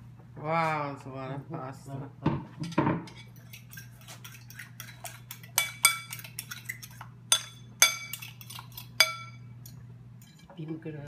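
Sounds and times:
fork beating eggs in a bowl: 0:02.6 - 0:10.6
fork clinking against porcelain: 0:02.6 - 0:10.6.

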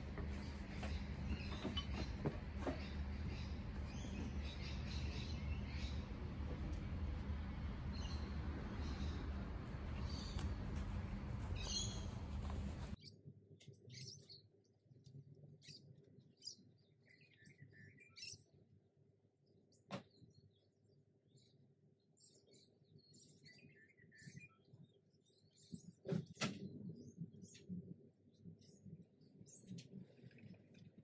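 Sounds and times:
birds chirping: 0:00.0 - 0:14.5
outdoor background noise: 0:00.0 - 0:31.0.

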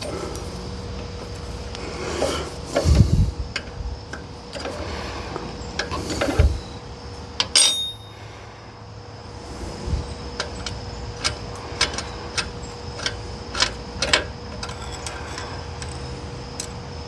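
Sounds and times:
short metallic ring: 0:07.5 - 0:08.3
wrench clicking and scraping: 0:10.4 - 0:16.8.

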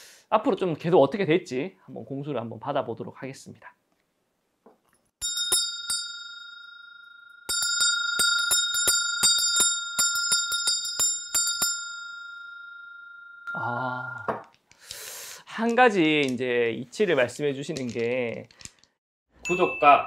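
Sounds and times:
hand bell ringing: 0:05.2 - 0:14.3, 0:19.4 - 0:20.0.

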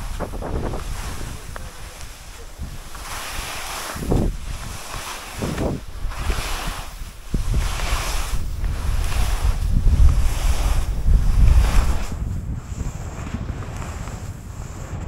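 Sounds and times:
skis swishing on snow: 0:00.0 - 0:15.0
wind rumbling on microphone: 0:00.0 - 0:15.0.

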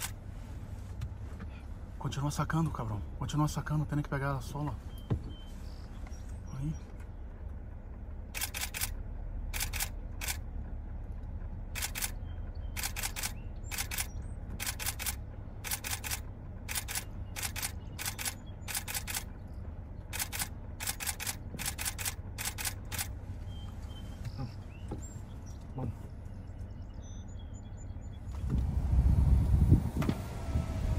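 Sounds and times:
low rumble: 0:00.0 - 0:30.9
camera shutters clicking: 0:08.4 - 0:09.0, 0:09.6 - 0:10.4, 0:12.8 - 0:19.3, 0:20.1 - 0:23.1.

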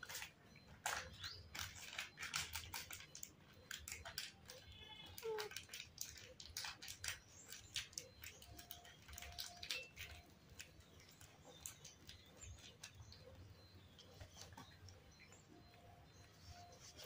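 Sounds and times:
monkey eating with faint clicks and taps: 0:00.0 - 0:17.0.

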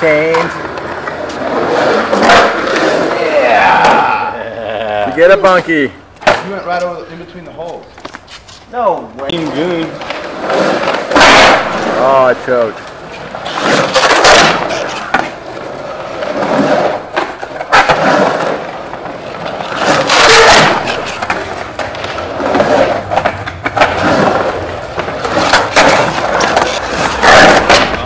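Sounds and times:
skateboard wheels rolling on concrete: 0:00.0 - 0:28.0
skateboard knocks: 0:19.8 - 0:28.0.

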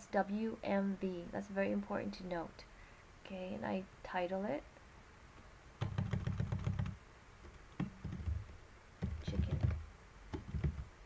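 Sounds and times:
computer keyboard typing: 0:05.8 - 0:10.9.

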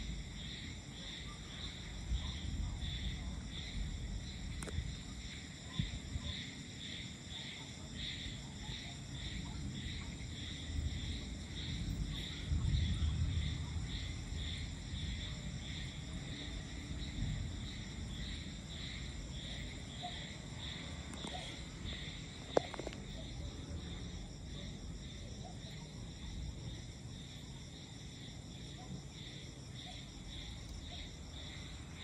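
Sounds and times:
insects chirping: 0:00.0 - 0:32.0
distant thunder rumble: 0:09.2 - 0:27.0.

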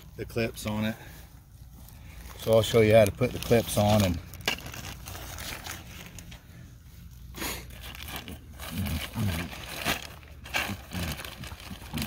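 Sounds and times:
plastic bag crinkling: 0:02.0 - 0:06.6, 0:07.6 - 0:12.0.

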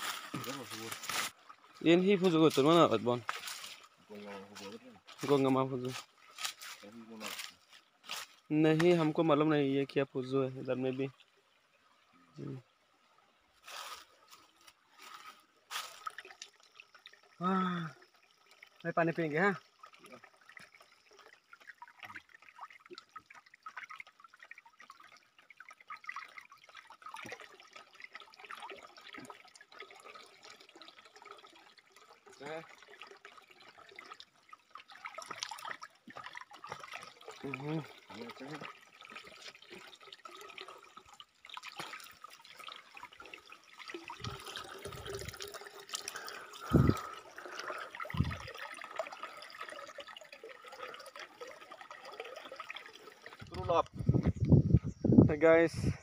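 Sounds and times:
water pouring into a basin: 0:00.0 - 0:12.7, 0:13.6 - 0:54.7
water splashing into drum: 0:32.4 - 0:54.3
water splashing on a face: 0:41.4 - 0:50.0.

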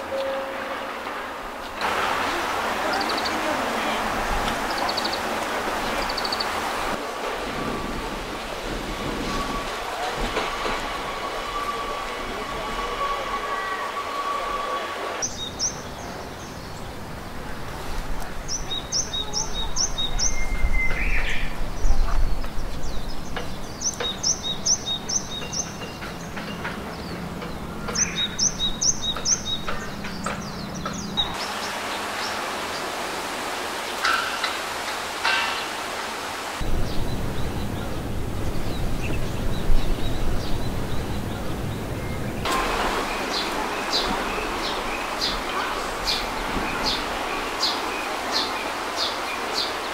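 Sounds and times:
songbird chirping: 0:00.0 - 0:07.1, 0:08.3 - 0:49.9
outdoor background noise: 0:00.0 - 0:49.9
wind buffeting microphone: 0:01.9 - 0:13.1, 0:36.6 - 0:49.9.

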